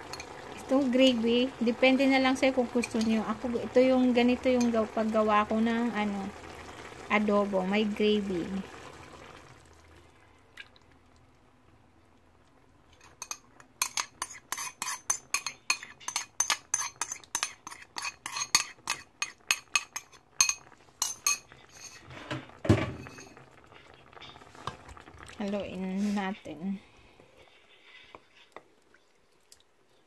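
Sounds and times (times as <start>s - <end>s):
wooden spoon scraping ceramic bowl: 13.0s - 20.1s, 21.0s - 22.4s, 27.4s - 28.7s.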